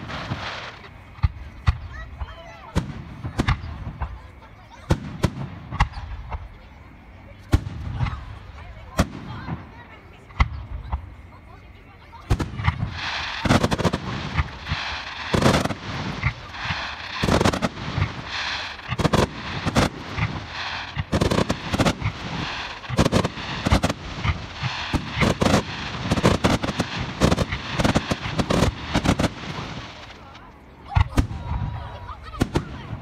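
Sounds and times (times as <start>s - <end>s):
fireworks bursting: 0.0s - 33.0s
fireworks crackling: 0.0s - 33.0s.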